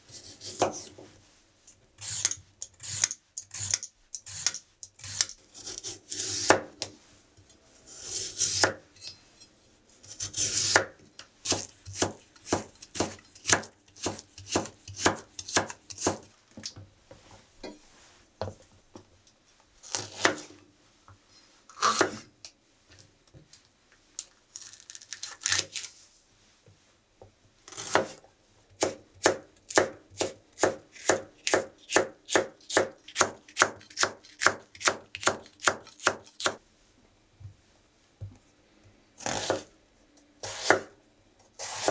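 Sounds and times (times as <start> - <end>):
knife scraping board: 0.1 - 1.0, 7.9 - 10.8, 39.2 - 39.7, 40.4 - 40.8, 41.6 - 41.9
knife chopping on wooden board: 11.5 - 16.3, 40.4 - 40.9, 41.6 - 41.9.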